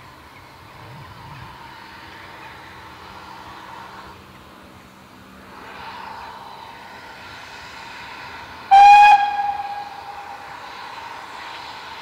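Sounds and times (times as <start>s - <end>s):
steam engine hissing: 0.0s - 12.0s
steam whistle blast: 8.7s - 10.5s.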